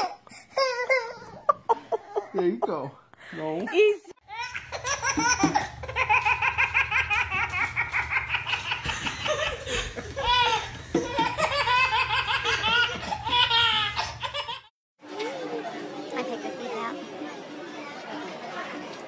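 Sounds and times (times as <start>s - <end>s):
baby belly-laughing: 4.3s - 14.7s.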